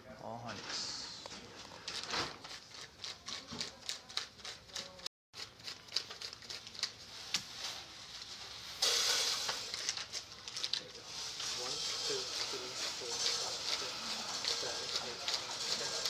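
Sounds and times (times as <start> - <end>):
steady hiss: 8.4 - 9.8.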